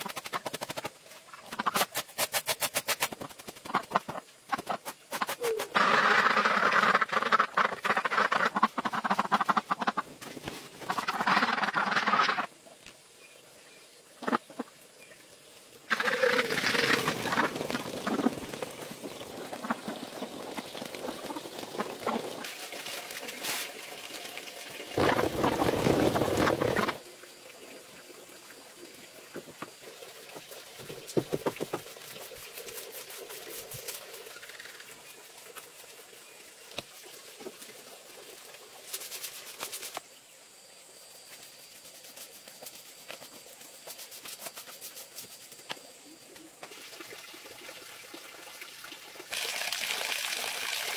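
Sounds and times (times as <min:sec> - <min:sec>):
ducks quacking: 0:03.7 - 0:10.1, 0:10.8 - 0:12.5.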